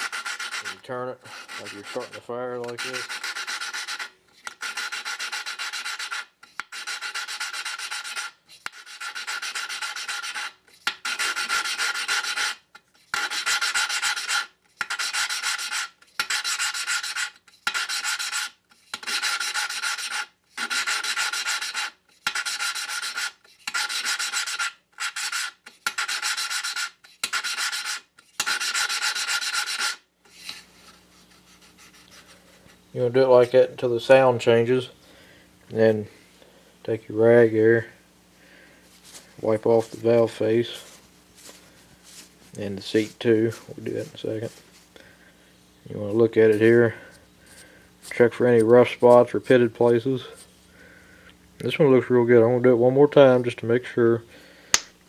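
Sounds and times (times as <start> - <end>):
gritty rasping of valve lapping: 0.0 - 30.5.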